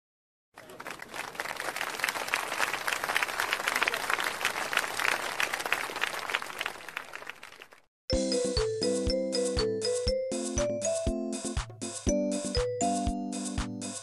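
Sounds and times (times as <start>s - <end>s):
crowd applauding: 0.6s - 7.9s.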